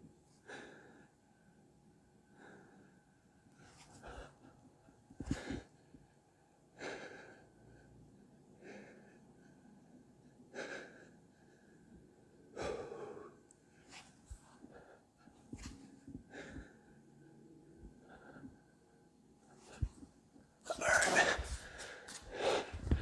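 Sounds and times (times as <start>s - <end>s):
man breathing hard: 3.6s - 6.0s, 6.7s - 17.1s, 17.7s - 18.9s, 20.7s - 23.0s.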